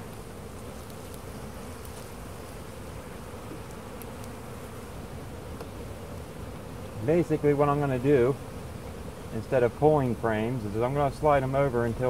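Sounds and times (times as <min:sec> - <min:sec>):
honeybees buzzing: 0:00.0 - 0:12.0
faint ticks: 0:03.6 - 0:04.4.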